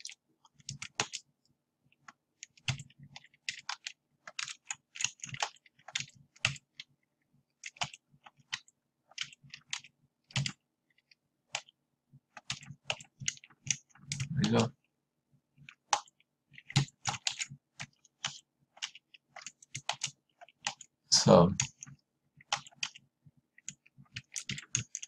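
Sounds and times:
keyboard keys clicking: 0:00.0 - 0:01.2, 0:02.0 - 0:06.9, 0:07.6 - 0:11.7, 0:12.4 - 0:14.7, 0:15.6 - 0:20.9, 0:21.6 - 0:25.0.

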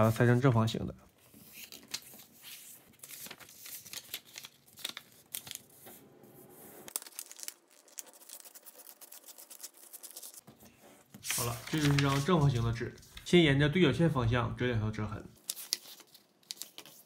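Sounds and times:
paper rustling and crackling: 0:01.2 - 0:06.0, 0:06.9 - 0:13.4, 0:15.4 - 0:17.0.

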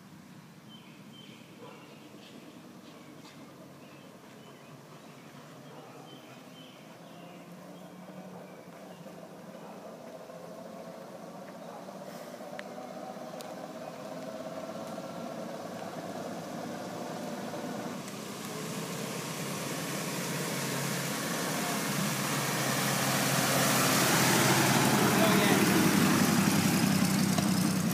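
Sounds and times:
truck engine running: 0:13.4 - 0:27.9.

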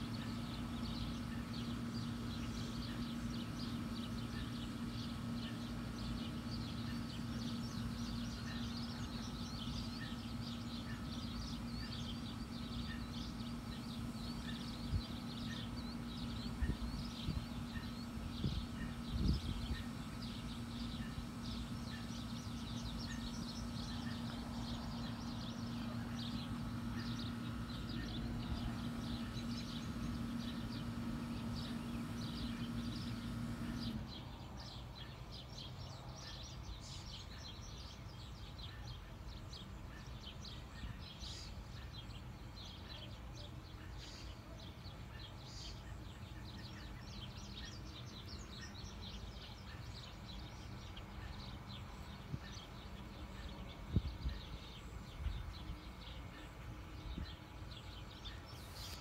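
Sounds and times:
low hum: 0:00.0 - 0:34.6
birds chirping: 0:00.0 - 0:59.0.

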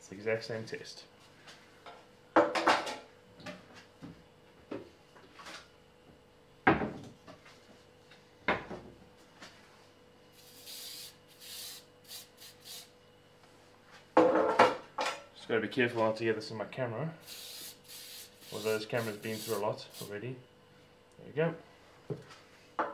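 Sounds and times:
aerosol spray hisses: 0:10.4 - 0:12.9, 0:17.2 - 0:20.1.

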